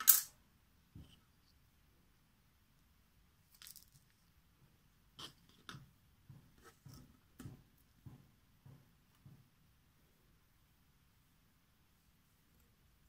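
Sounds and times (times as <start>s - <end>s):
light taps and scrapes: 5.2s - 7.6s.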